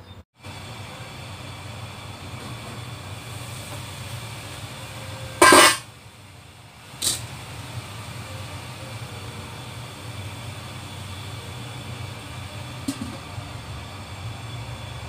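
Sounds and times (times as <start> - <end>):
water boiling in a wok: 0.4 - 15.0
metal lid clattering: 5.4 - 5.8.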